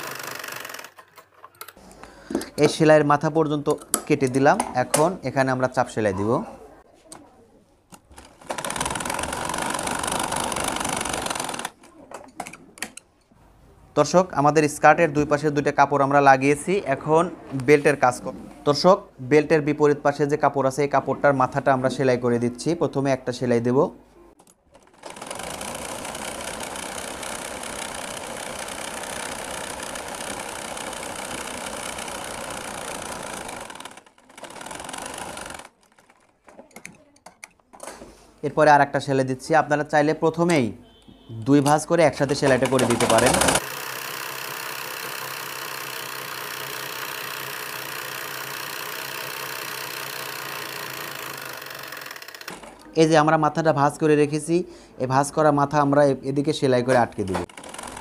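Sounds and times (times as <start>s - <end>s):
sewing machine running: 0.0s - 1.7s, 8.2s - 11.8s, 24.8s - 36.2s, 42.2s - 52.7s, 57.4s - 58.0s.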